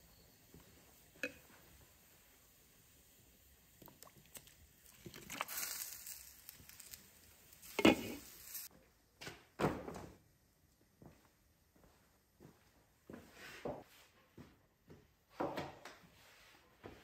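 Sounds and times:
onions tumbling into a pot: 0:03.8 - 0:08.7.

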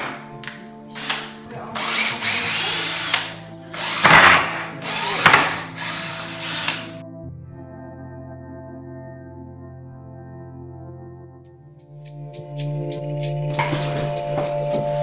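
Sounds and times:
cordless drill running: 0:01.0 - 0:07.0.

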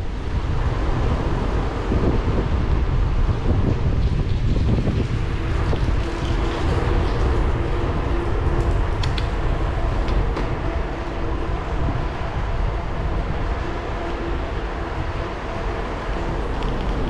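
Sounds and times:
bike tyre and wind rumble: 0:00.0 - 0:17.0.

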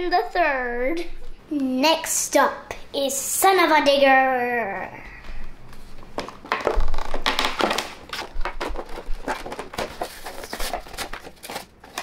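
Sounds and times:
plastic packaging crinkling: 0:06.2 - 0:12.0.

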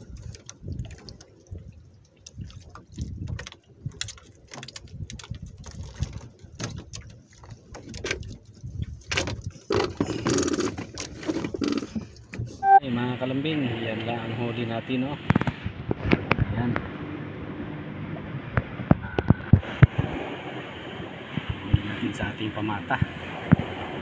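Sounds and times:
clicks and rustling of handling fish: 0:00.0 - 0:12.6.

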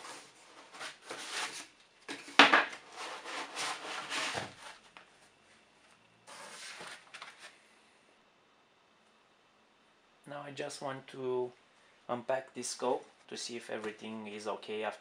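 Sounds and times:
foam and cardboard rubbing: 0:02.8 - 0:04.9.

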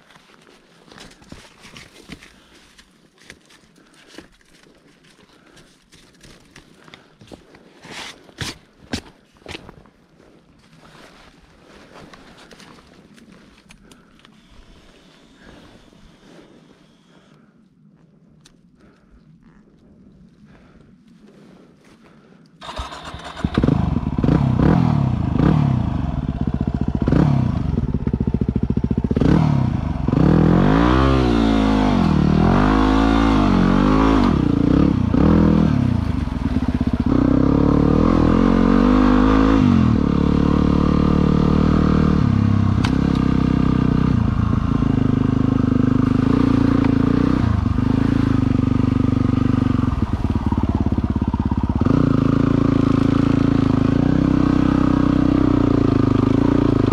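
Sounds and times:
engine revving and idling: 0:22.6 - 0:56.9.

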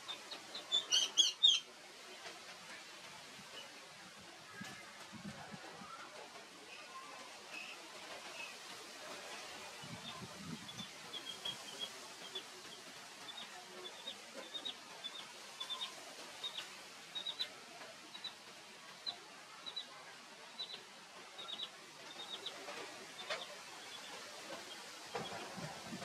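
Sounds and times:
steady outdoor hiss: 0:00.0 - 0:26.0
bird chirping: 0:00.5 - 0:01.6, 0:13.3 - 0:17.5, 0:21.4 - 0:22.5.

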